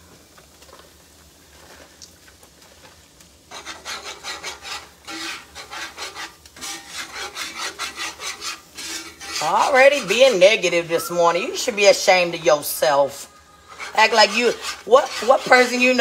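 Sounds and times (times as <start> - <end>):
metal whisk scraping skillet: 3.5 - 16.0.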